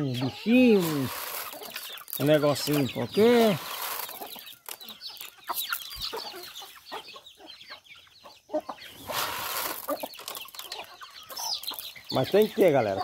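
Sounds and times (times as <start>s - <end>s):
chickens clucking and calling: 0.0s - 13.0s.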